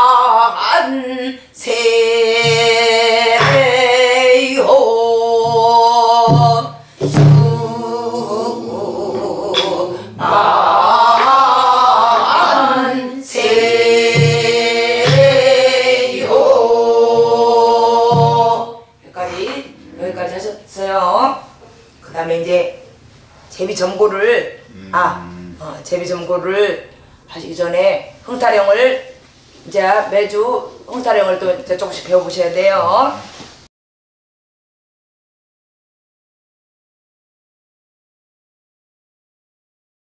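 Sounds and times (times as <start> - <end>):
woman singing folk song: 0.0 - 19.6
barrel drum beats: 2.4 - 4.4, 5.3 - 7.8, 13.4 - 18.7
stick knock: 2.4 - 4.4, 5.4 - 7.6, 9.2 - 10.0, 11.0 - 12.6, 13.4 - 16.5.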